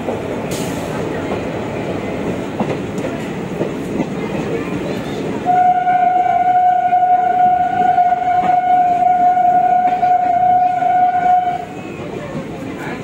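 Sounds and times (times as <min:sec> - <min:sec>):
train horn long blast: 0:05.4 - 0:11.7.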